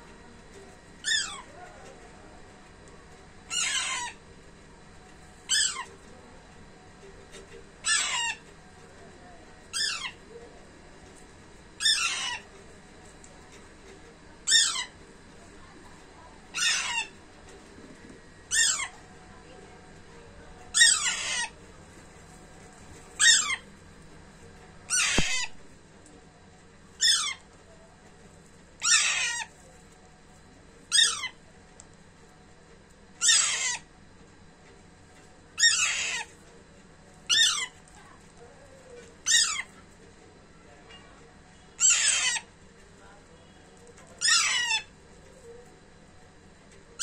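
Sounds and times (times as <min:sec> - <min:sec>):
parakeet squawking: 0:01.0 - 0:01.6, 0:03.5 - 0:04.2, 0:05.5 - 0:06.0, 0:07.8 - 0:08.5, 0:09.7 - 0:10.2, 0:11.8 - 0:12.6, 0:14.4 - 0:15.0, 0:16.5 - 0:17.2, 0:18.5 - 0:19.0, 0:20.7 - 0:21.7, 0:23.2 - 0:23.7, 0:24.9 - 0:25.6, 0:27.0 - 0:27.4, 0:28.8 - 0:29.6, 0:30.9 - 0:31.4, 0:33.2 - 0:33.9, 0:35.6 - 0:36.4, 0:37.3 - 0:37.8, 0:38.9 - 0:39.8, 0:41.8 - 0:42.6, 0:44.1 - 0:45.6.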